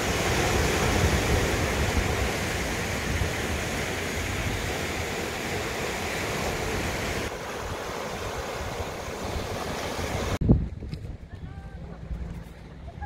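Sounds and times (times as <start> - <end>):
sea waves: 0.0 - 10.4
wind: 0.0 - 13.0
wind gusting on microphone: 0.0 - 13.0.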